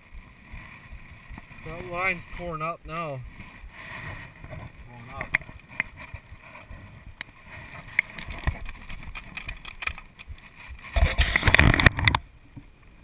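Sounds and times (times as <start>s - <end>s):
riding gear rustling and clicking: 3.2s - 12.8s
camera handling rumble and scraping: 3.3s - 12.3s.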